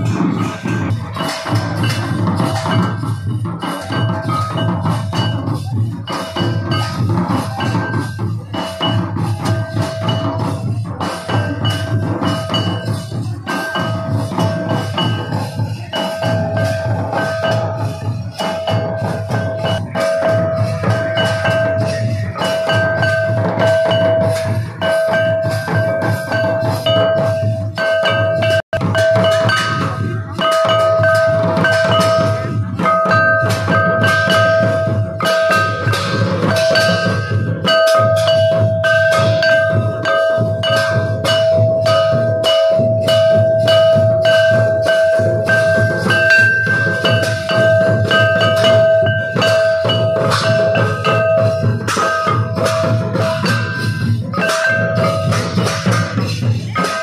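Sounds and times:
hand cymbals clashing: 0.0 - 57.0
two-headed drum beating: 0.0 - 57.0
metal gong ringing: 16.0 - 57.0.

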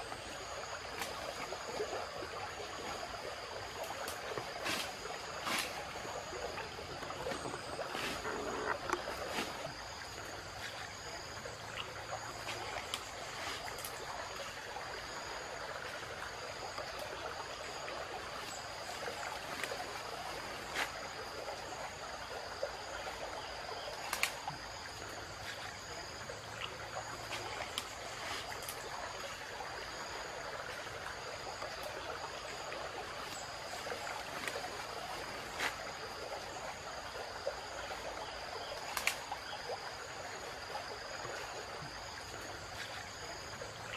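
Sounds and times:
insects buzzing: 0.0 - 43.9
stream running: 0.0 - 43.9
stick snapping in dry leaves: 24.1 - 24.4, 38.9 - 39.2.

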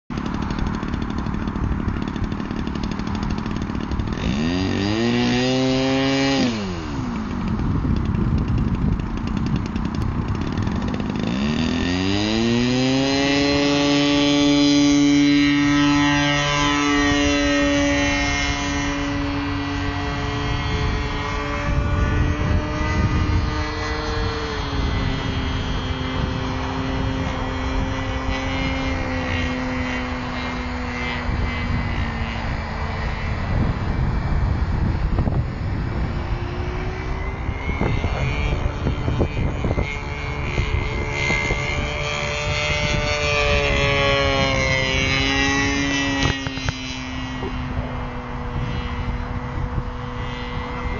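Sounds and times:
model plane engine buzzing: 0.1 - 50.9.

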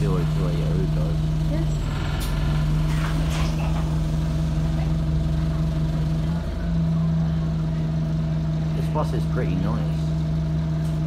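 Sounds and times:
bus engine idling: 0.0 - 11.0.

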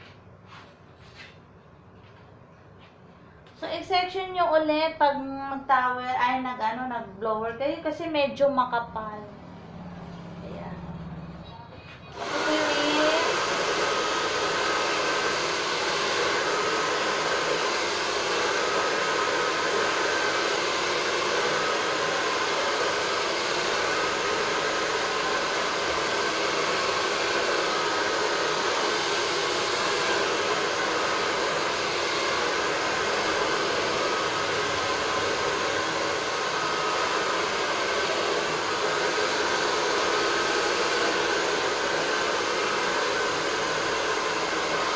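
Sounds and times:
hair dryer blowing: 12.1 - 44.9.

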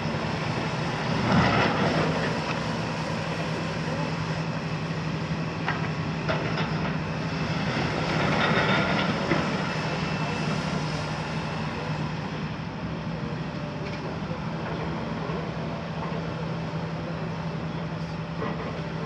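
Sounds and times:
excavator diesel engine humming: 0.0 - 19.0.

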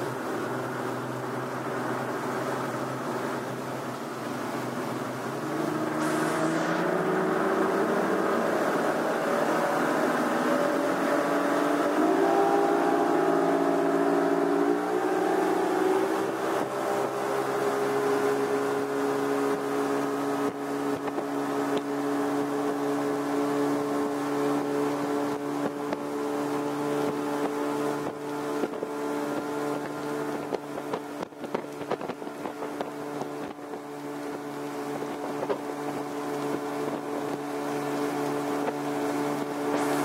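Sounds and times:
outboard motors accelerating: 0.0 - 40.0.

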